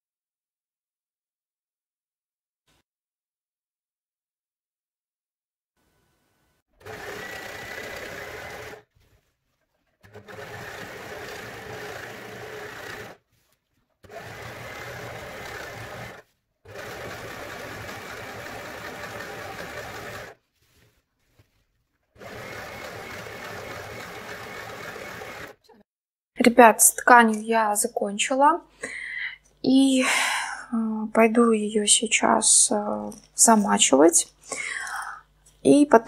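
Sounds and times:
overlocker stitching fabric: 6.8 - 25.9.

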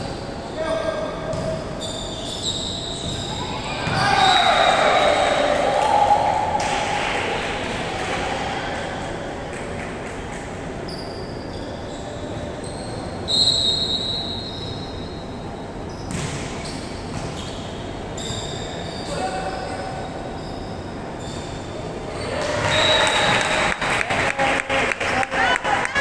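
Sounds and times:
shoes squeaking on gym floor: 1.3 - 4.4, 20.3 - 23.0.

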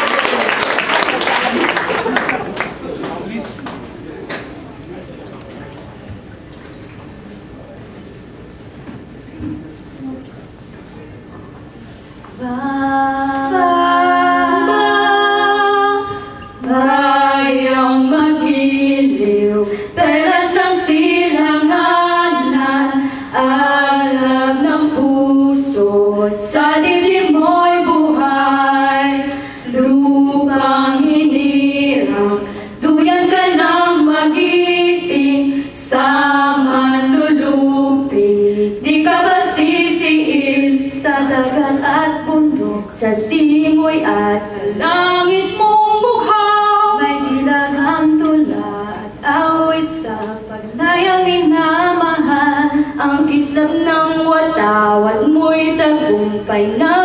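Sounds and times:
vocal group singing a cappella: 12.4 - 57.0.

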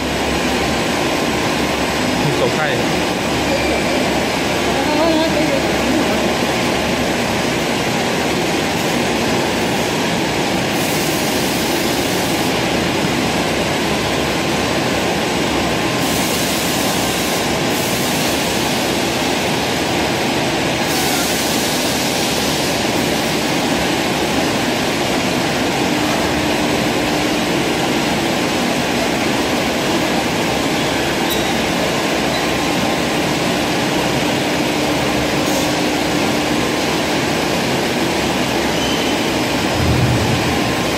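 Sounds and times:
machine noise: 39.1 - 40.9.

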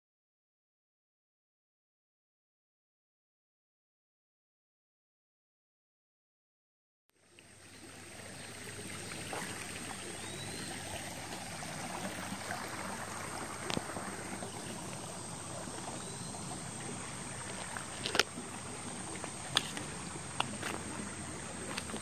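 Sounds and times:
creek water running: 7.2 - 22.0
insects buzzing: 7.7 - 22.0.

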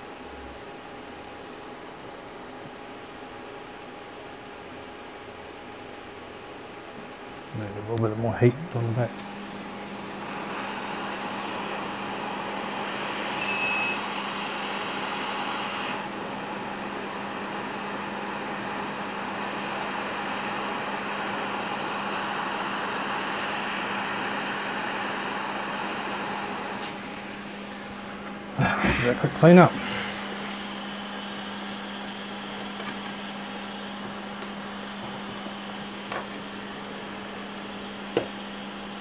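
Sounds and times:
hot air station blowing: 7.6 - 39.0
short beep: 13.4 - 14.0.

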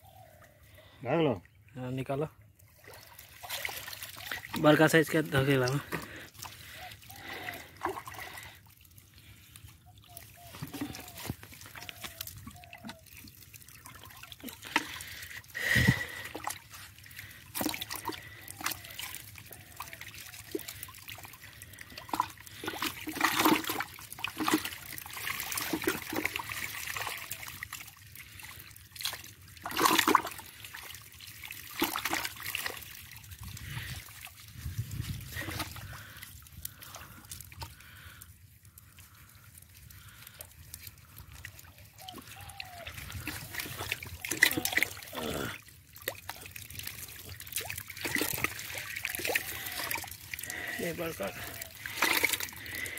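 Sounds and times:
water splashing in plastic bucket: 2.6 - 52.9.

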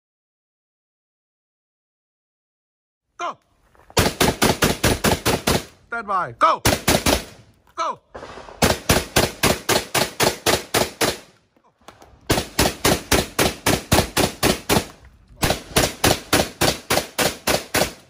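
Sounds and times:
rapid shotgun fire: 4.0 - 5.7, 6.6 - 7.4, 8.2 - 11.4, 12.3 - 18.0.

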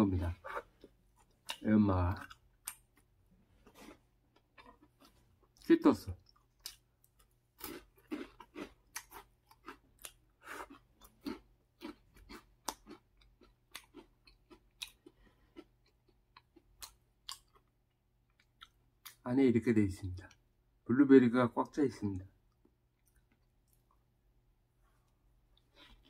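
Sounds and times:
chewing crisp snack: 0.8 - 19.2, 22.5 - 24.1.

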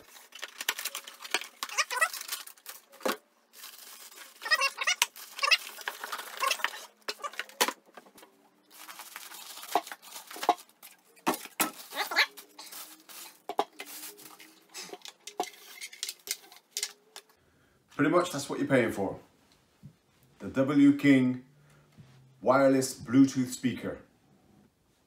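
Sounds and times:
plastic bag rustling and crinkling: 0.0 - 16.9.

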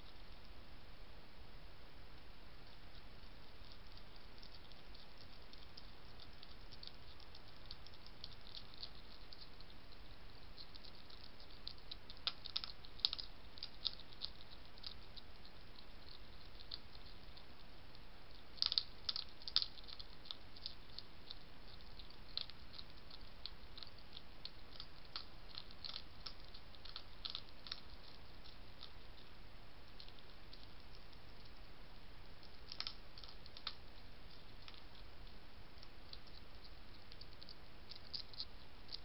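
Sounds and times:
faint steady hiss: 0.0 - 39.0
hedgehog crunching dry food: 2.6 - 39.0.

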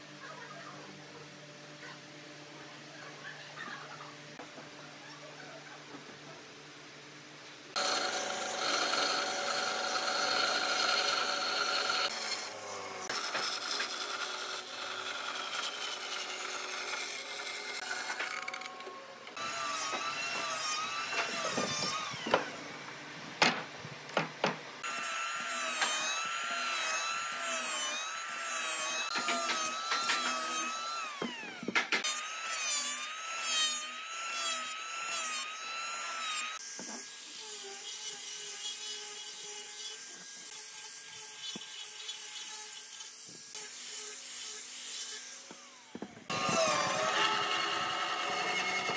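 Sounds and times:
power tool motor whining: 7.8 - 22.6, 45.4 - 48.9.

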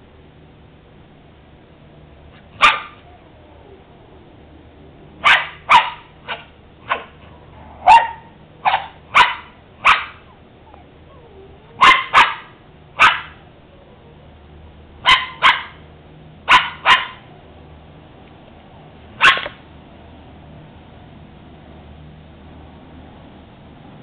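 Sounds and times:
small dog barking: 2.4 - 3.2, 5.2 - 14.2, 15.0 - 15.8, 16.4 - 17.3, 19.2 - 19.6.

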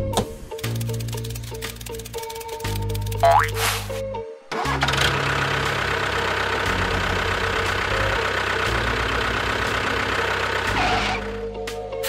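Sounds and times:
tractor engine running: 0.6 - 11.7.

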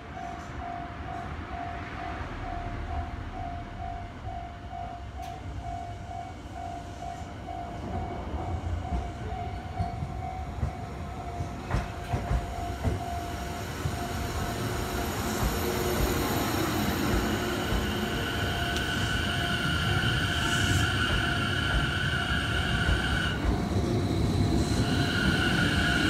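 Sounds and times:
electric train passing: 0.0 - 26.0
train wheels clacking: 7.9 - 26.0.

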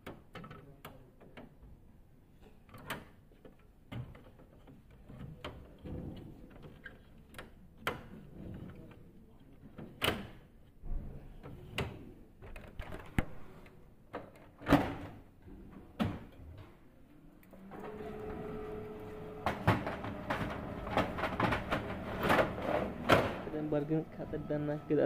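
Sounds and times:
copier machine hum: 17.5 - 25.0.

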